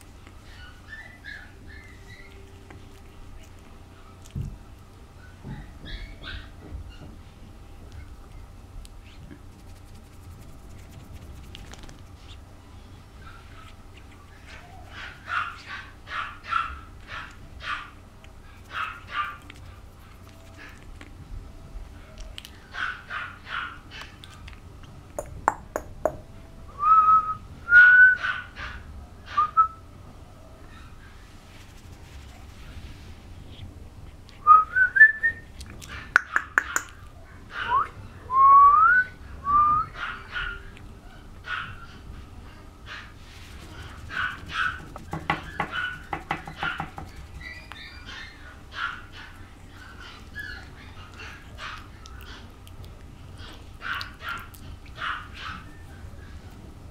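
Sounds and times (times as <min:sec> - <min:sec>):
puppy whining and squeaking: 0:00.3 - 0:04.2, 0:05.2 - 0:07.2, 0:43.6 - 0:52.5, 0:53.4 - 0:56.6
puppy yipping: 0:00.4 - 0:03.5, 0:05.2 - 0:07.1, 0:13.2 - 0:18.0, 0:18.6 - 0:19.6, 0:22.0 - 0:24.4, 0:28.2 - 0:29.6, 0:35.8 - 0:38.0, 0:39.9 - 0:42.0, 0:43.7 - 0:52.5, 0:53.4 - 0:56.4
tongue clicks: 0:24.2 - 0:26.0, 0:35.6 - 0:37.1.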